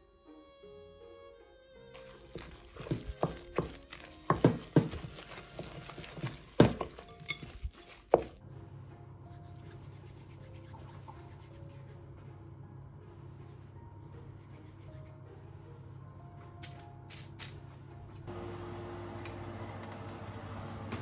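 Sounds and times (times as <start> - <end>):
wooden spoon knocking glass bowl: 2.8 - 8.4.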